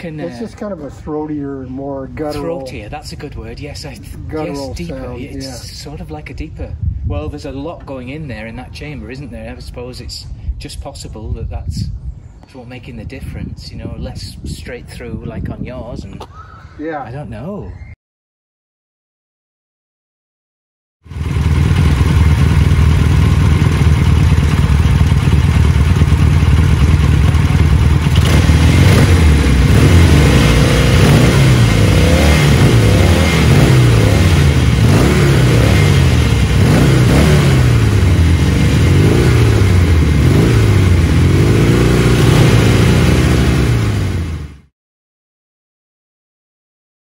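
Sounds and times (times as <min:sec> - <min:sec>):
motorcycle engine idling and revving: 0:21.1 - 0:44.7.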